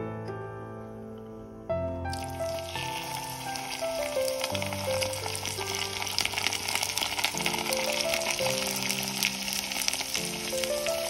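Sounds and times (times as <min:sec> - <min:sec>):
background music: 0:00.0 - 0:11.0
oil sizzling and crackling: 0:02.1 - 0:11.0.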